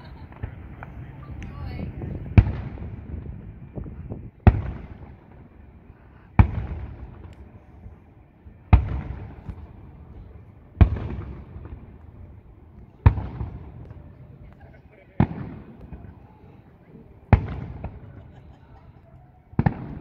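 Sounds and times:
firework shells booming: 0.0 - 7.8, 8.6 - 20.0.

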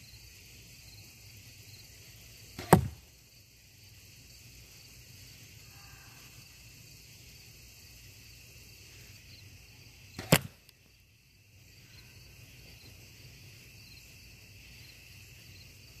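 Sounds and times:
high insect drone: 0.0 - 16.0
arrow striking sandbags: 2.6 - 3.1, 10.2 - 10.6.

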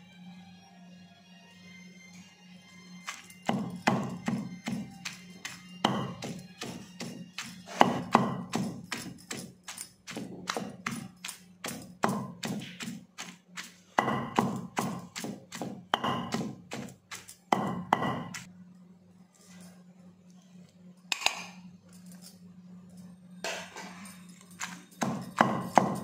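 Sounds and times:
pestle pounding in stone mortar: 3.1 - 18.5, 24.6 - 26.0.

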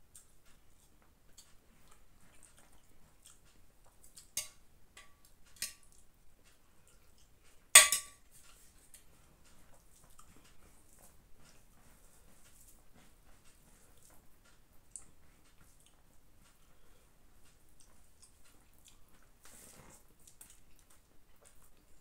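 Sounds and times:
metal ladle clinking on pot: 7.8 - 8.2.

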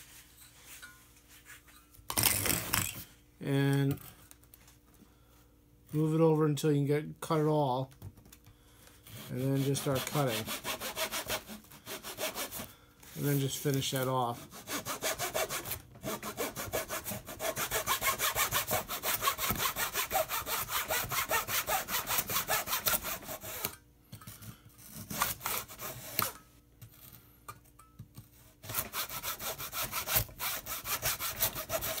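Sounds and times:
hand saw sawing: 9.0 - 12.7, 14.0 - 23.8, 25.0 - 26.4, 28.6 - 32.0.

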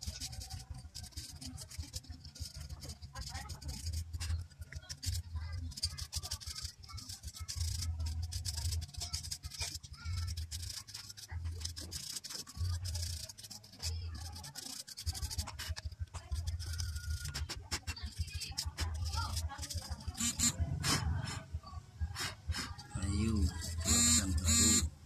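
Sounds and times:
brush scrubbing plastic: 0.0 - 21.4.

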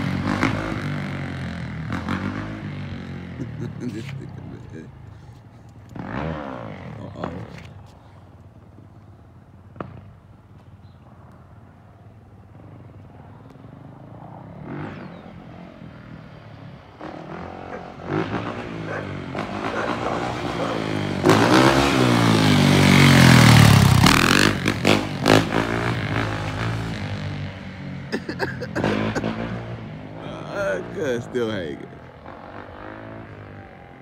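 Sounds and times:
dirt bike engine revving: 0.0 - 5.3, 5.9 - 7.7, 13.8 - 34.0.

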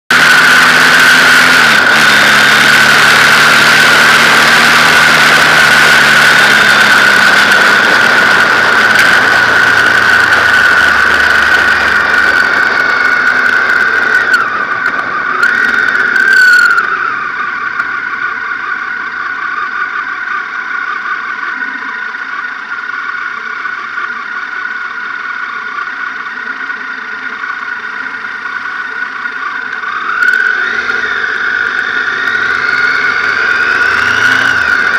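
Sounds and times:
motorcycle engine running: 0.0 - 34.9
steady high-pitched whine: 0.1 - 34.9.

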